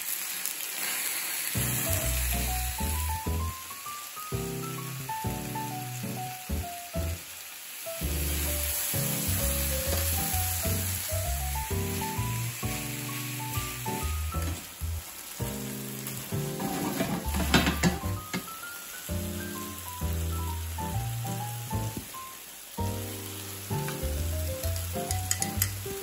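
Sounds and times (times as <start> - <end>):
food sizzling in a frying pan: 0.0 - 26.0
light background music: 1.6 - 7.1, 8.0 - 14.8, 15.4 - 26.0
spatula scraping a pan: 16.5 - 18.0.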